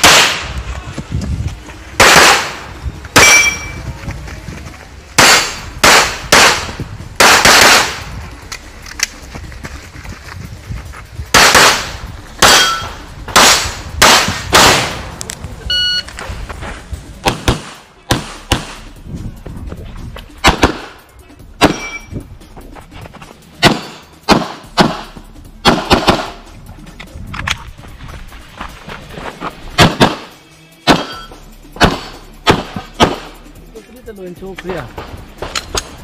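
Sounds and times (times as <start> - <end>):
pistol shots: 0.0 - 0.6, 2.0 - 3.6, 5.2 - 8.1, 11.3 - 15.1, 17.2 - 18.8, 20.4 - 21.0, 21.6 - 22.0, 23.6 - 25.0, 25.6 - 26.4, 29.8 - 33.4.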